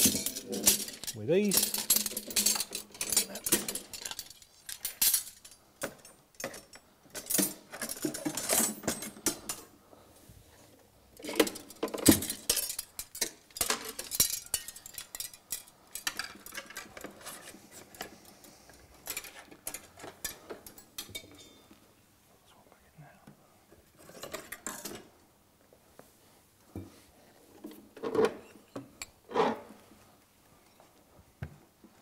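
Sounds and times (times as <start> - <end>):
steel rods clinking and rattling: 0.0 - 9.7, 11.2 - 18.3, 19.0 - 21.7.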